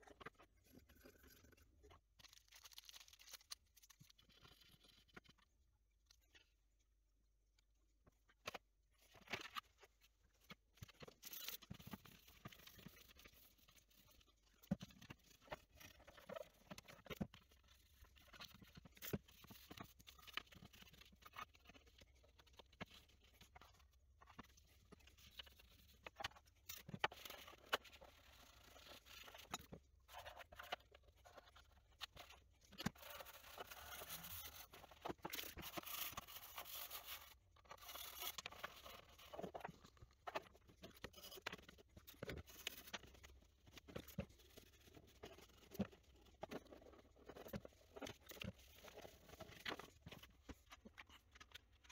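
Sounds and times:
brush scrubbing plastic: 11.8 - 50.6.

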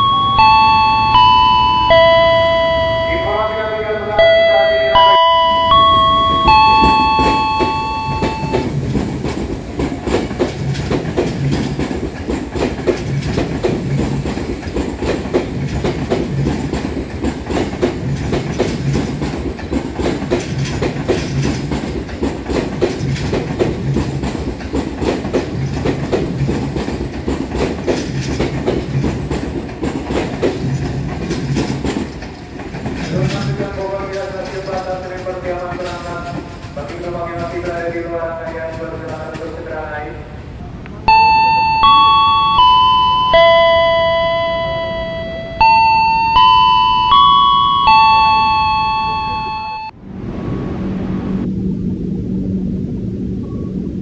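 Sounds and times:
chime tones: 0.0 - 8.6, 41.1 - 49.9
train rumble: 0.0 - 54.0
train wheels clicking over rail joints: 6.3 - 39.9.

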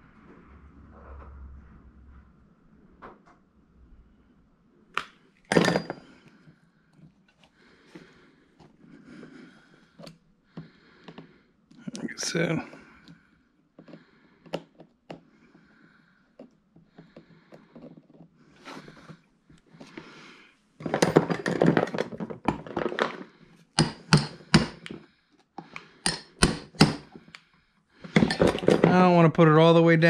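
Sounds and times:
metal tools clattering: 5.5 - 6.2, 20.8 - 23.3, 28.0 - 29.1.

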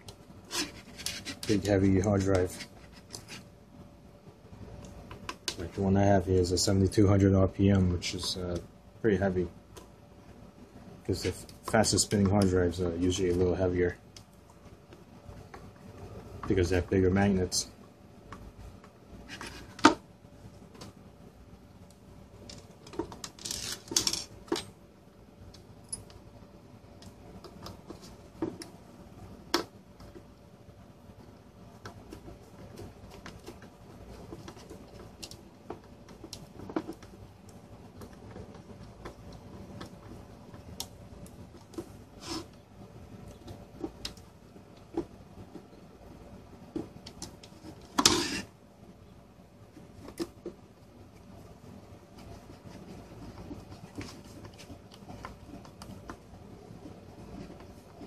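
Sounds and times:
handling scrape: 0.4 - 3.5, 19.2 - 19.9, 41.8 - 42.6, 47.4 - 48.5
plastic scraping on wooden desk: 47.5 - 48.5.

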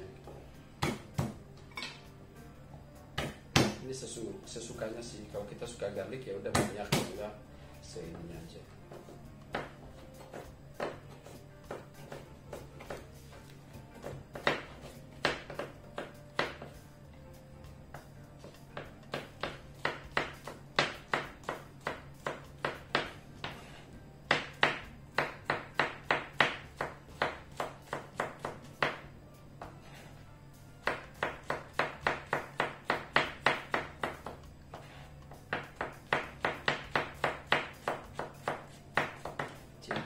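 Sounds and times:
knife chopping on plastic board: 3.2 - 3.8, 6.5 - 7.2, 9.5 - 13.1, 14.0 - 16.8, 18.4 - 29.0, 30.8 - 40.0.

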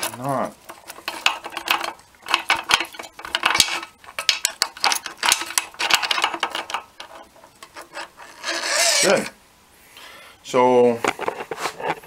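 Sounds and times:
metal tool clinking and scraping: 0.0 - 9.4.

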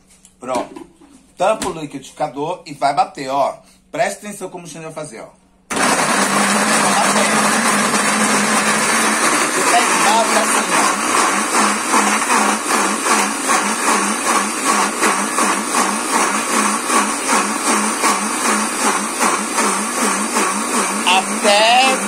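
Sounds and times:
blender grinding coconut: 5.7 - 22.0.

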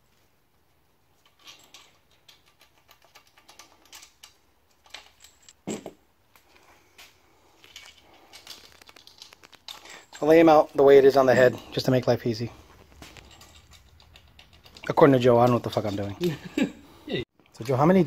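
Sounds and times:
small metal parts clinking: 1.2 - 6.0, 7.5 - 16.7.

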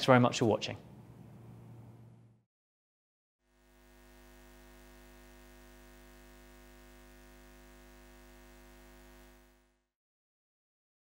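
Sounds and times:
faint steady low hum: 3.5 - 9.8.

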